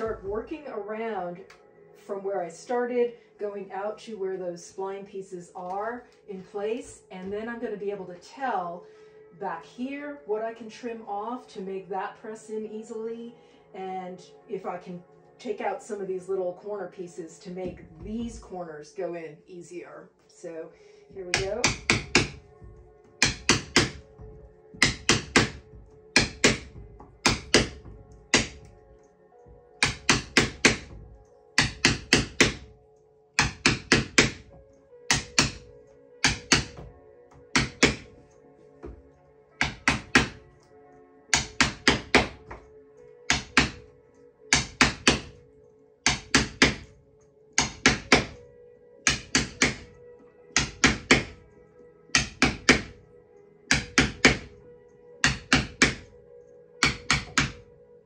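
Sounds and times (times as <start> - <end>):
quiet background music: 0.0 - 58.0
wooden mallet tapping a wedge: 21.2 - 28.8, 29.5 - 32.8, 33.4 - 40.4, 41.3 - 42.7, 43.3 - 43.8, 44.5 - 45.4, 46.0 - 46.9, 47.6 - 48.4, 49.0 - 50.0, 50.6 - 51.5, 52.1 - 53.0, 53.7 - 54.6, 55.2 - 56.1, 56.8 - 57.7.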